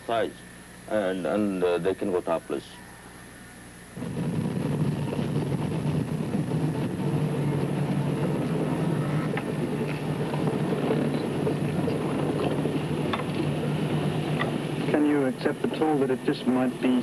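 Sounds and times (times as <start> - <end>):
car engine and road drone: 4.0 - 16.0.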